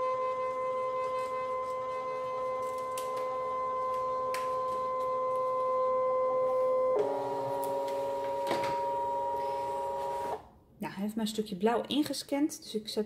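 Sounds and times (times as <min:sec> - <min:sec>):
cutting machine motor whine: 0:00.2 - 0:10.4.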